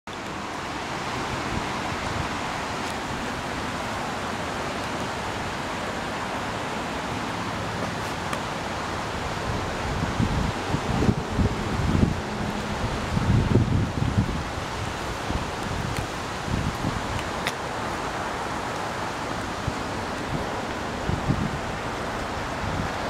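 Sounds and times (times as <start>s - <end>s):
steady outdoor hiss: 0.1s - 23.0s
wind buffeting microphone: 8.1s - 23.0s.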